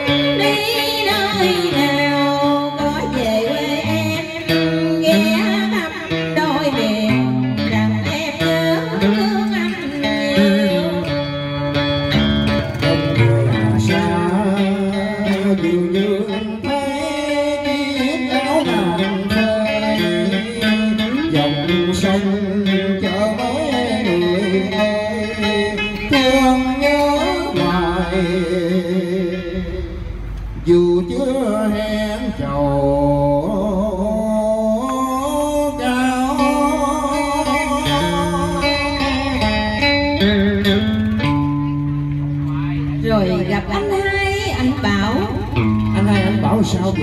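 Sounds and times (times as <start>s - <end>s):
man singing into a microphone: 0.0s - 11.5s, 12.6s - 40.1s, 45.8s - 47.0s
guitar playing bent notes: 0.0s - 47.0s
held low bass notes: 10.5s - 17.0s, 21.3s - 47.0s.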